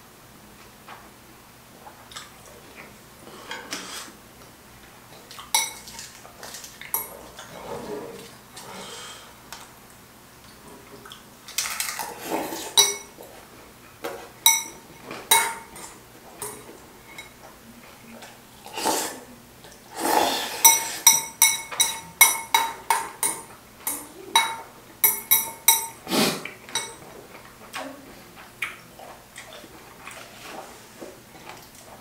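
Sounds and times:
metal chopsticks clinking on bowl: 14.5 - 15.6, 20.7 - 26.0, 26.8 - 27.0.

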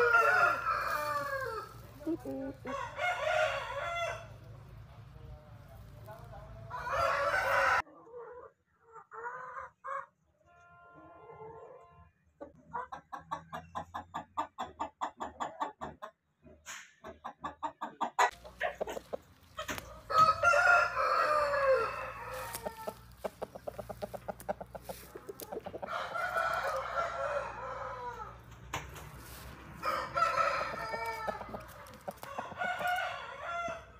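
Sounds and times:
rooster long loud calls: 0.0 - 1.8, 20.1 - 23.0
chickens clucking: 11.3 - 33.8.

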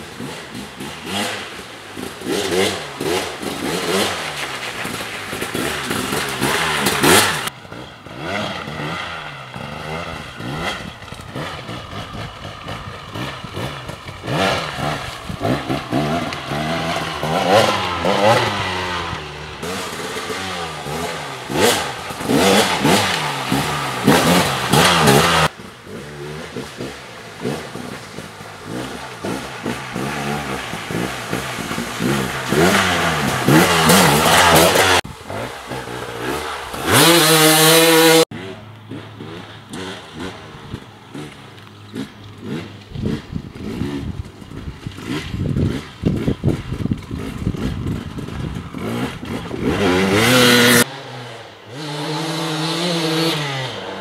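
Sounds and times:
dirt bike engine revving: 0.0 - 54.0.

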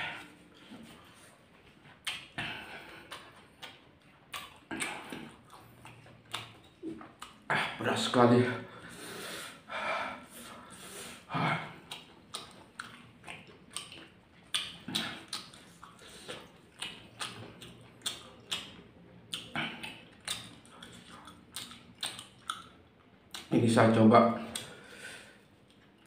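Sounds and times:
chillies crunched and chewed: 0.0 - 8.1, 11.3 - 23.7.

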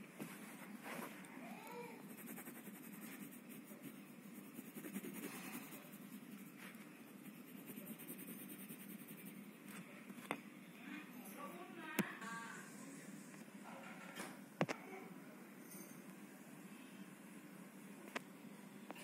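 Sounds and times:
pencil scratching on paper: 2.0 - 9.5.

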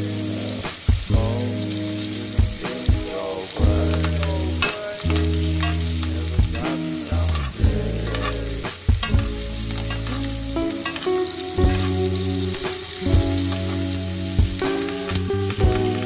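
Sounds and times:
background music with chords: 0.0 - 16.0
butter sizzling in a skillet: 0.0 - 16.0
metal spoon scraping a pan: 4.0 - 6.1, 7.3 - 12.1.

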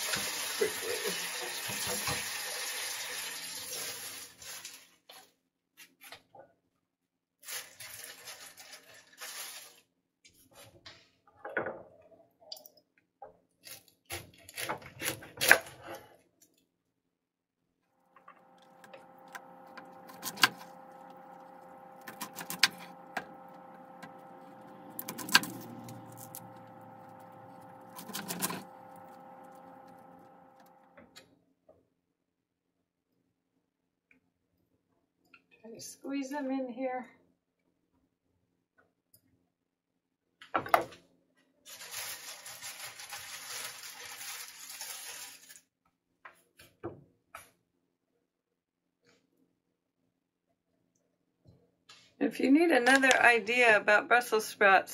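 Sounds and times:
sprouts set into metal tray: 7.4 - 9.9, 41.7 - 45.6
steady hum: 18.1 - 31.1.

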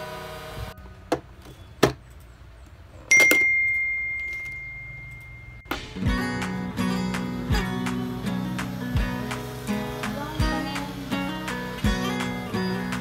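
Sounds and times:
high ringing chime: 3.1 - 6.3.

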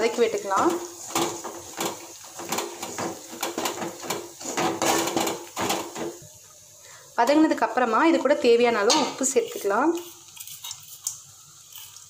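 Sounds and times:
spoon scraping a metal pan: 0.2 - 6.2, 8.8 - 12.0.

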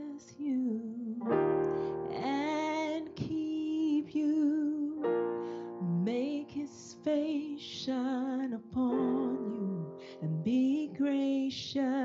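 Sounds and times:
electronic keyboard chords: 1.0 - 7.2
woman singing with vibrato: 2.1 - 5.1, 5.8 - 12.0.

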